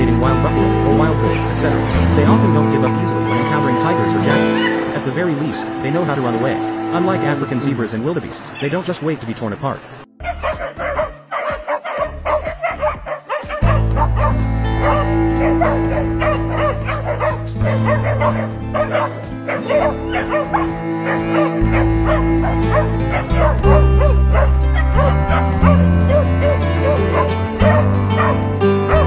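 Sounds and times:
background music with bass: 0.0 - 8.4, 10.1 - 29.0
dog yelping and barking: 4.4 - 4.9, 10.2 - 29.0.

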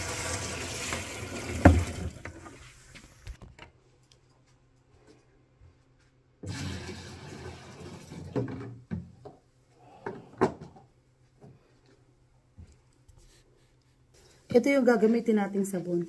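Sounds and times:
water pouring into tank: 0.0 - 2.7, 6.4 - 8.5
plastic bucket knocking and clunking: 0.8 - 2.6, 8.0 - 9.4.

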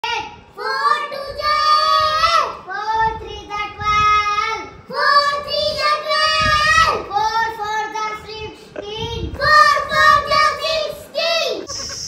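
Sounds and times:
child breathing: 8.5 - 8.8.

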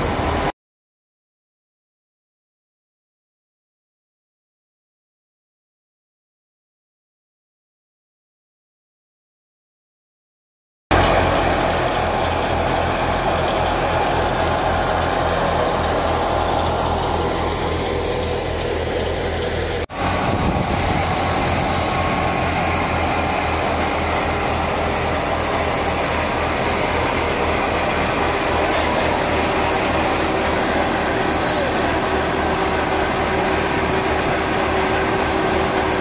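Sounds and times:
thresher machine noise: 10.9 - 36.0
tractor diesel engine chugging: 10.9 - 36.0.

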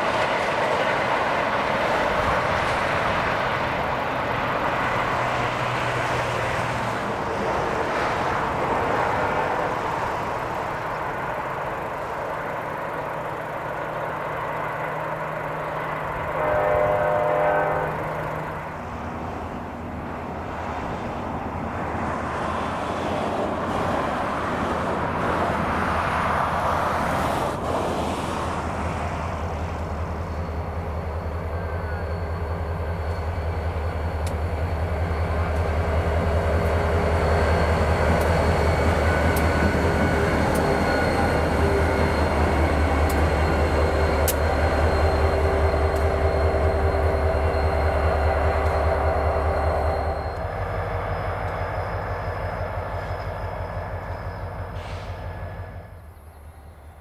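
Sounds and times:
diesel locomotive engine drone: 0.0 - 57.0
high whine: 29.8 - 57.0.

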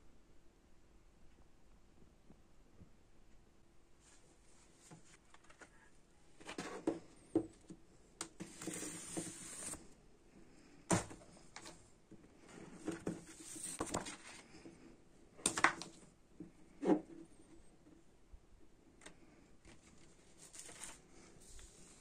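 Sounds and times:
paper rustling and sliding: 8.4 - 10.0, 12.4 - 14.6, 19.6 - 22.0.

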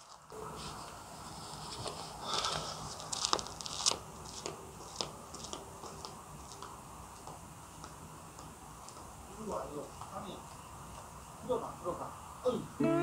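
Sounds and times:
footsteps on gravel: 1.8 - 9.1.

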